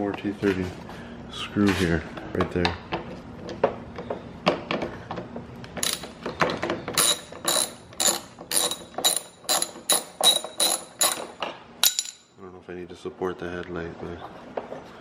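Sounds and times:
ratchet wrench clicking: 5.8 - 6.2, 7.0 - 12.2.

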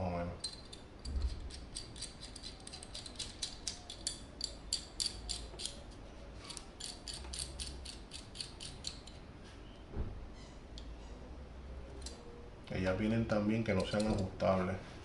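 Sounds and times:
wrench clicking: 0.4 - 5.8, 6.5 - 9.2, 13.8 - 14.3.

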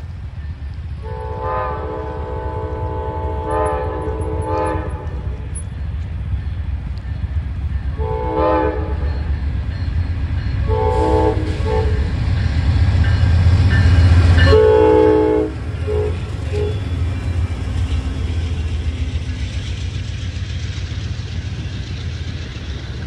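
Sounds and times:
passenger cars rolling by: 0.0 - 23.0
locomotive horn blasts: 1.0 - 5.4, 8.0 - 9.1, 10.6 - 12.2, 13.9 - 17.0.

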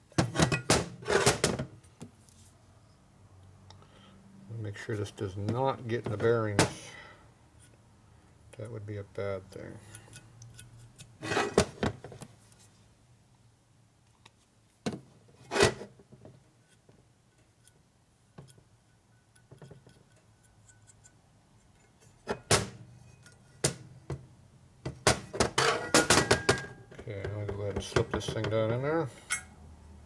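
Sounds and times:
metal parts knocking on workbench: 0.2 - 1.7, 24.8 - 28.6.

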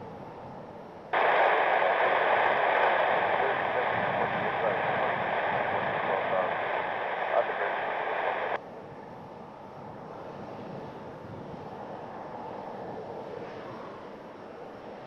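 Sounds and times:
distant jet engine rush: 0.0 - 15.0
radio transmission: 1.2 - 8.6.

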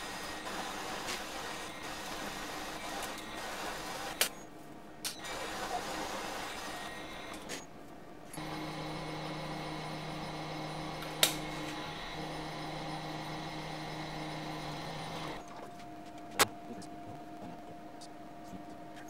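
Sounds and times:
milling machine motor hum: 0.0 - 4.2, 8.4 - 15.7.

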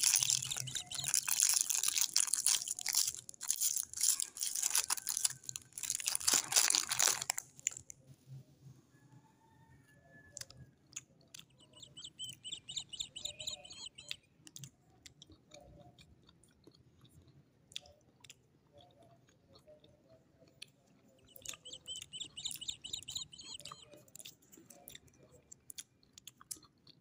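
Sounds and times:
small birds twittering: 0.0 - 3.2, 11.2 - 14.4, 21.1 - 24.2
lollipop licking and sucking: 0.0 - 7.9.

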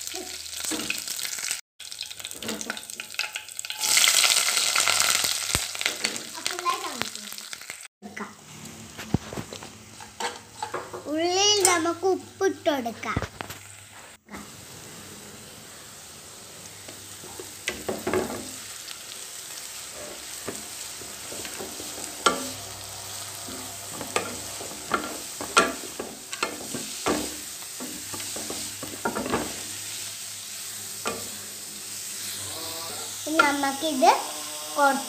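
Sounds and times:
onions sizzling in hot oil: 0.0 - 35.0
spatula scraping a pan: 8.6 - 11.1, 17.1 - 35.0.

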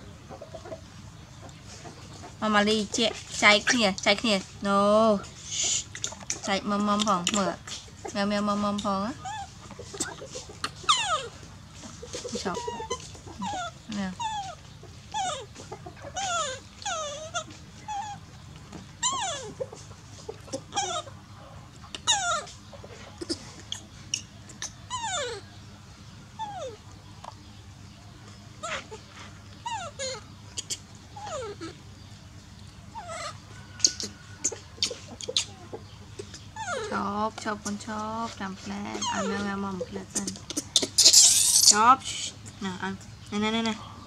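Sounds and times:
baby monkey whimpering cries: 9.0 - 11.4, 12.0 - 19.8, 20.4 - 21.2, 21.9 - 25.6, 26.4 - 26.9, 28.6 - 32.1, 32.9 - 37.4, 38.9 - 42.4.

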